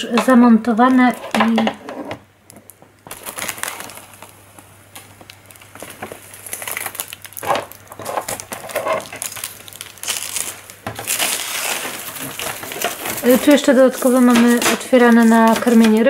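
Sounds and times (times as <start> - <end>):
plastic film crinkling: 2.5 - 16.0.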